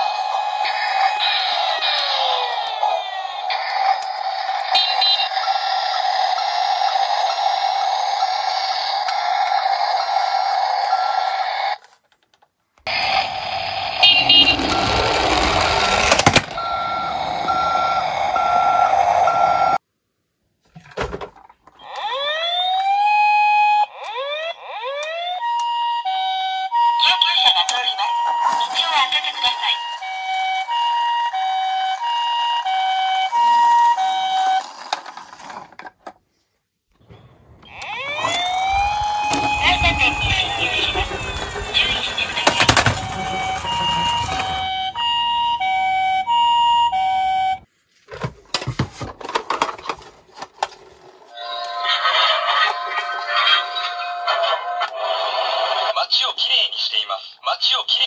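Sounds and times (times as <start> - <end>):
toy engine-like hum: 0.0 - 11.9, 12.9 - 19.8, 37.7 - 47.4, 50.6 - 55.9
toy truck rolling on wood: 0.0 - 19.8, 27.4 - 55.5
reversing beep: 13.9 - 19.8, 37.6 - 47.6.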